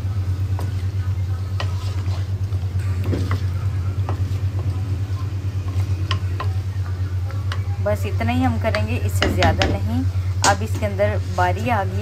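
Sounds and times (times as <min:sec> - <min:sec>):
steady low hum: 0:00.0 - 0:12.0
spatula scraping clay pot: 0:01.6 - 0:02.4.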